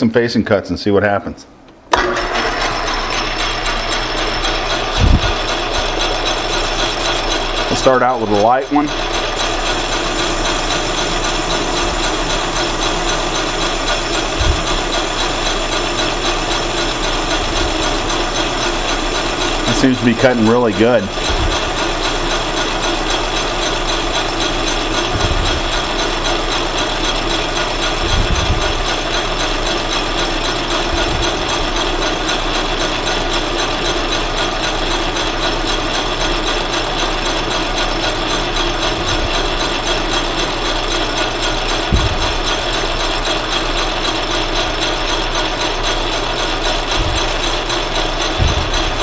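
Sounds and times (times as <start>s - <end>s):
metal lathe cutting steel: 1.9s - 49.0s
mechanical gear noise: 2.6s - 49.0s
dull thumps: 24.9s - 26.8s, 27.9s - 29.0s, 30.6s - 32.2s, 38.6s - 44.6s, 46.4s - 49.0s.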